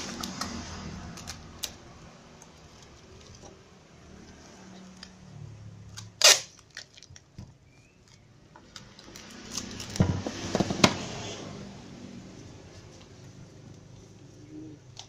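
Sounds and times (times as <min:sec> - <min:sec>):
tape peeling with snaps: 0:00.0 - 0:01.8, 0:05.9 - 0:07.4, 0:08.0 - 0:10.0
packing tape rasp: 0:06.0 - 0:07.1.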